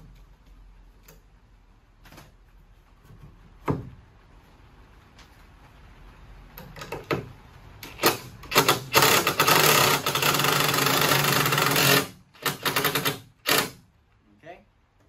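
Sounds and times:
cordless drill driving screw: 7.9 - 13.8.

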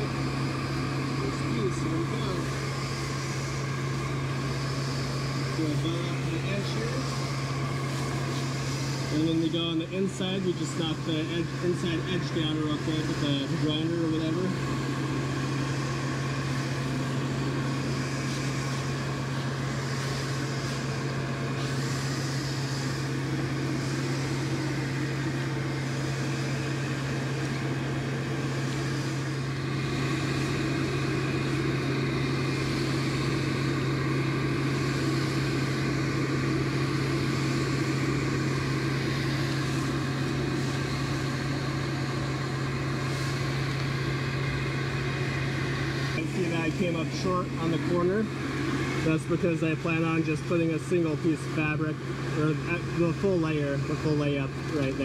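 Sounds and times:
electric air blower humming: 0.0 - 55.0.

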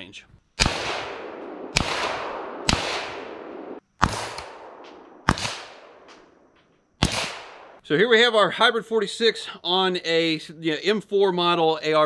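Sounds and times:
rifle shots cracking: 0.6 - 7.8.

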